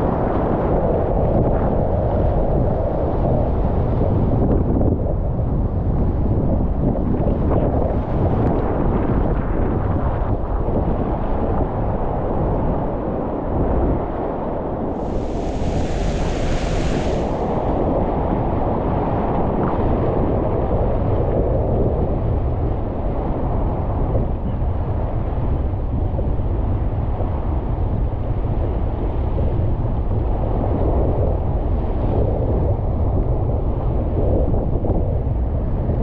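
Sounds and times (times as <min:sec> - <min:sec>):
whitewater rushing: 0:15.0 - 0:17.8.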